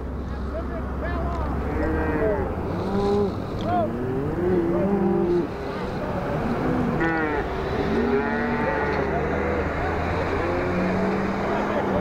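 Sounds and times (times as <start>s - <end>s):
truck passing: 0.0s - 12.0s
cattle mooing: 1.6s - 5.6s, 6.2s - 11.6s.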